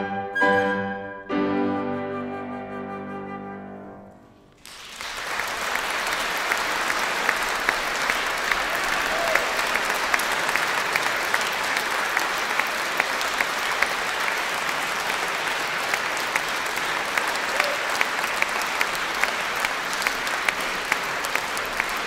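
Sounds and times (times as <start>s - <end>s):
audience applauding: 4.6s - 22.0s
close individual claps: 4.6s - 22.0s.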